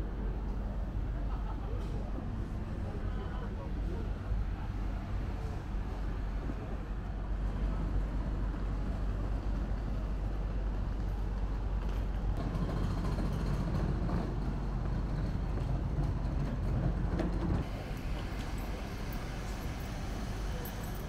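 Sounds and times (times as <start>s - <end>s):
low rumble of street traffic: 0.0s - 21.0s.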